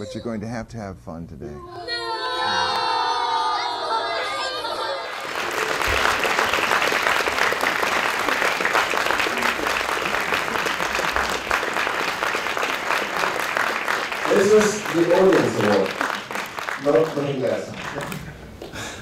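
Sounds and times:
audience clapping: 4.8s - 19.0s.

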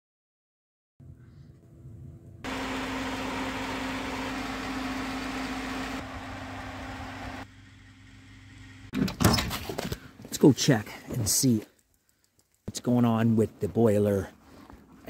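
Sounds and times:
electric fan humming: 1.6s - 8.9s.

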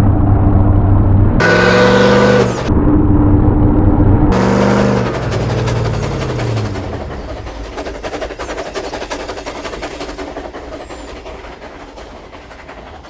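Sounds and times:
train wheels clicking over rail joints: 4.4s - 13.0s.

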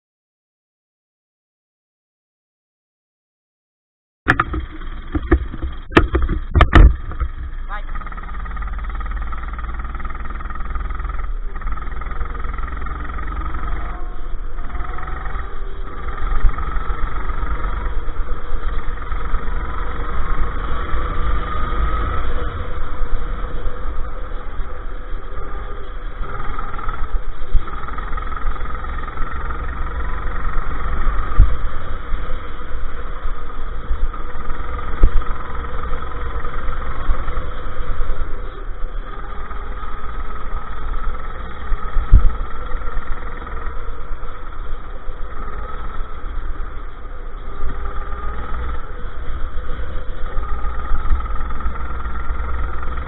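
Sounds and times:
sharp thumps: 4.3s - 8.1s
go-kart engine running: 4.3s - 53.0s
wind and vibration rumble: 4.3s - 53.0s.

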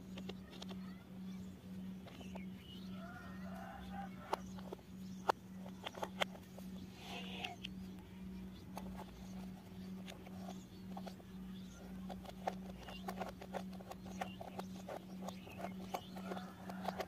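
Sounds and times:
steady low hum: 0.0s - 17.0s
plastic toy parts clicking: 0.1s - 0.9s, 3.5s - 6.6s, 8.5s - 17.0s
plastic screw being turned: 8.7s - 17.0s.

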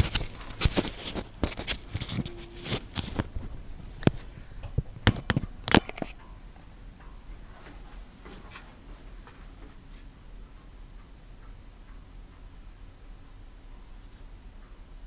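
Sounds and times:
sharp clicks and taps: 0.0s - 6.4s
faint room hiss: 0.0s - 15.0s.

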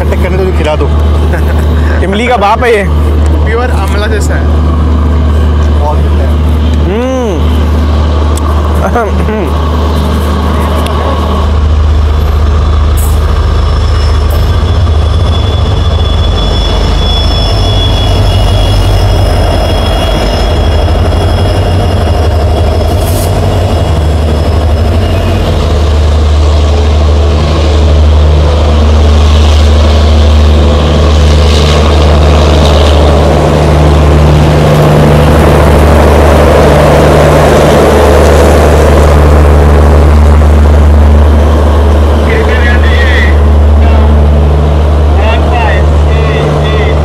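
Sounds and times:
diesel locomotive engine droning: 0.0s - 47.0s
train wheels squealing: 12.9s - 26.0s.

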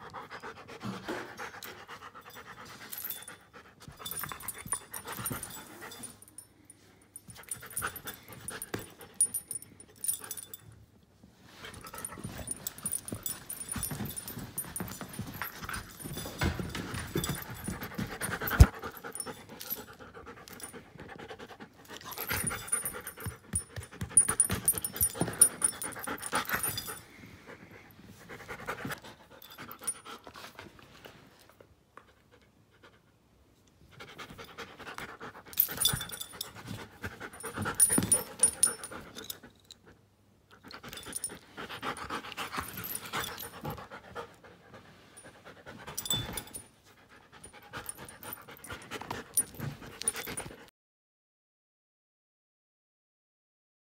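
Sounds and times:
dog panting: 40.6s - 50.6s.

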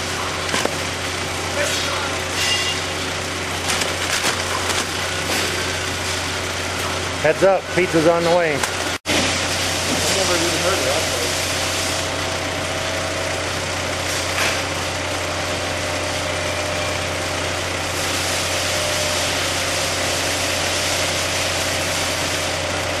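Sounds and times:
conveyor motor hum: 0.0s - 23.0s.

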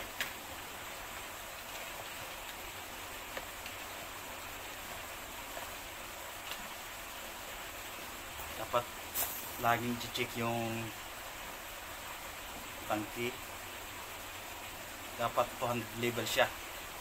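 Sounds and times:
steady background hiss: 0.0s - 17.0s
faint clicks of hoses: 3.2s - 3.8s.

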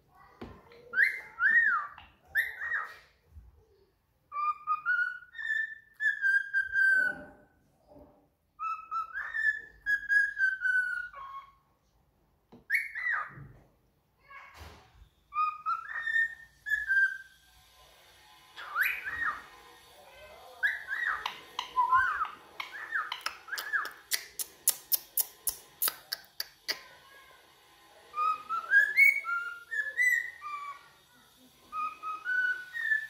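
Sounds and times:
cockatiel whistling a tune: 0.9s - 3.0s, 4.3s - 7.3s, 8.6s - 11.6s, 12.7s - 13.4s, 15.3s - 17.4s, 18.6s - 19.5s, 20.6s - 24.0s, 28.1s - 30.9s, 31.6s - 33.0s.

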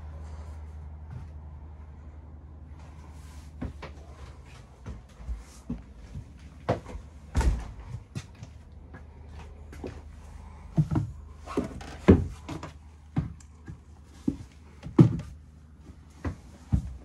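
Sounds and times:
footsteps on wooden steps: 3.5s - 17.0s.

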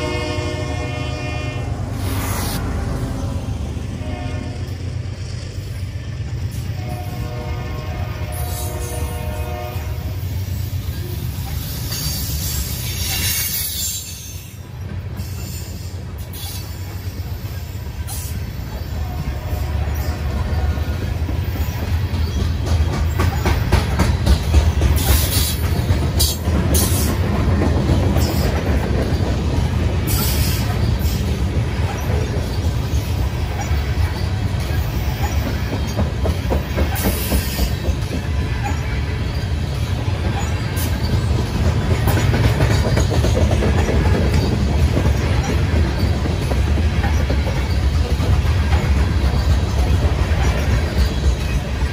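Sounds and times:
clickety-clack over rail joints: 0.0s - 51.9s
train wheels rumbling on rails: 0.0s - 51.9s.

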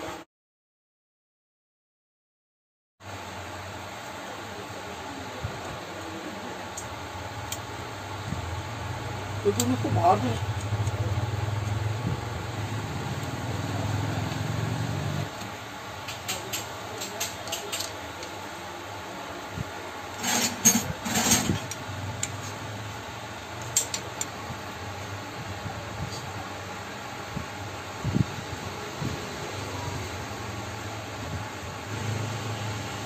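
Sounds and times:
metal tool clicks and clinks: 16.1s - 18.3s, 23.6s - 24.3s
clattering and scraping: 20.1s - 22.6s.

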